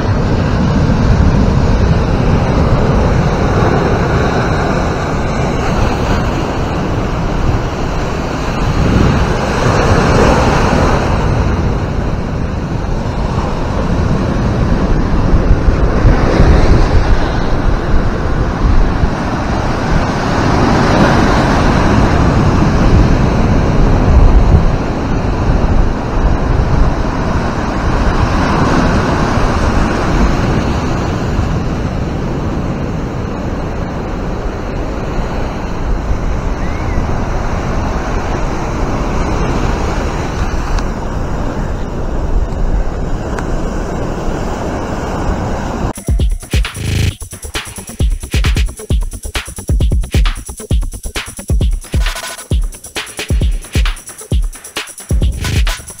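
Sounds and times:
ocean surf breaking on rocks: 0.0s - 36.4s
wind buffeting microphone: 0.0s - 44.7s.

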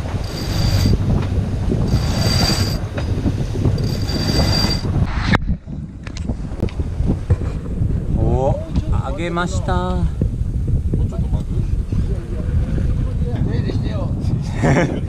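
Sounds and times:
rope squealing through rigging: 0.0s - 1.0s, 1.9s - 3.2s, 3.8s - 4.9s
wind noise on microphone: 0.0s - 15.0s.

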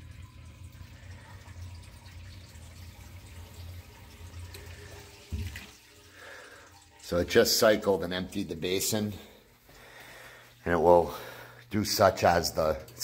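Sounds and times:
pump humming: 0.0s - 7.2s
pump thump: 5.3s - 5.7s.

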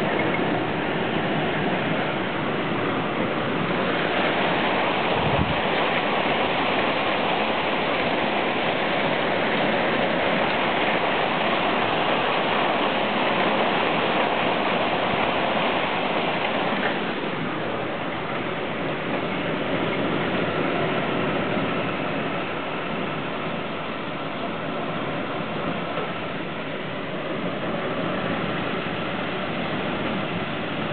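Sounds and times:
heavy rain pouring: 0.0s - 30.9s.

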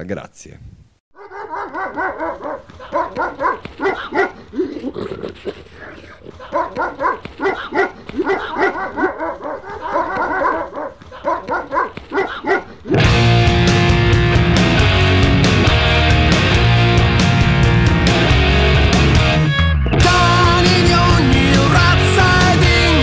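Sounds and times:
dogs barking and yelping: 1.2s - 13.1s
loud guitar rock music: 12.9s - 23.0s.

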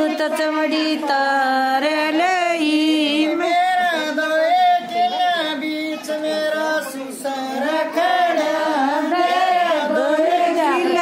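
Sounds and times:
woman singing unaccompanied: 0.0s - 4.0s, 7.5s - 11.0s.

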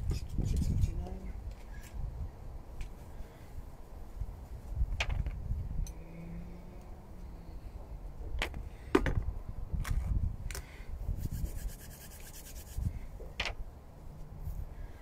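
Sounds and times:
rubbing and shuffling: 11.2s - 13.4s.

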